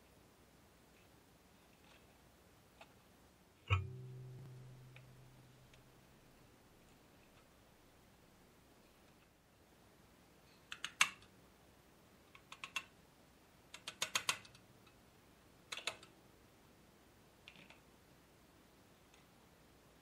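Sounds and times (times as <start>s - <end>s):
hammer tapping metal punch: 3.7s - 5.8s.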